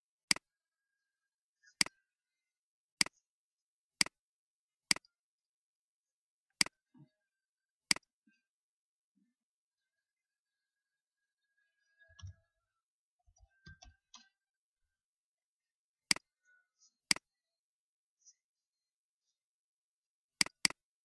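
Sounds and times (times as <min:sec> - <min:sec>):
computer mouse clicks: 0:04.9 - 0:05.1, 0:16.1 - 0:16.3, 0:20.4 - 0:20.8.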